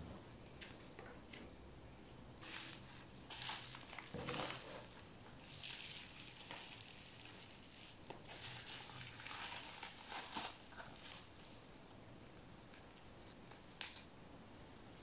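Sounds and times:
bubble wrap crinkling: 2.4 - 14.1.

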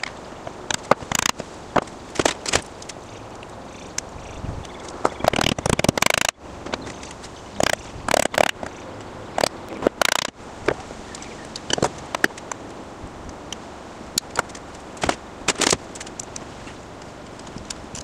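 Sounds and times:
hand tools knocking and clicking: 9.4 - 10.3.

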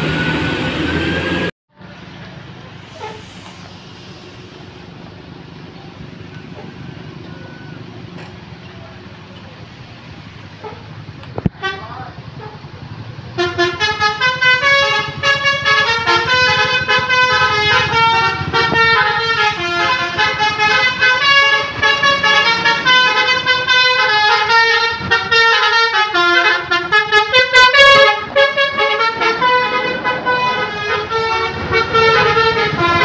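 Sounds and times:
bus engine rumble: 0.0 - 33.0
multi-tone bus horn melody: 11.4 - 33.0.

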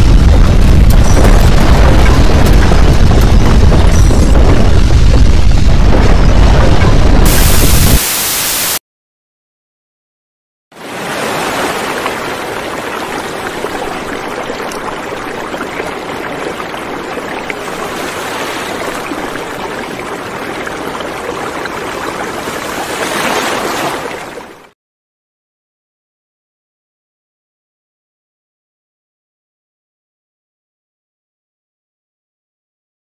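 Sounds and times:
steady rushing noise: 0.0 - 8.8.

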